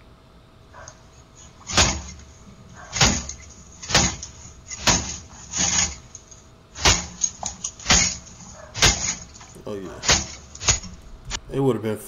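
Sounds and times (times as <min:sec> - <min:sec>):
heavy banging on door: 0:01.6 - 0:11.0.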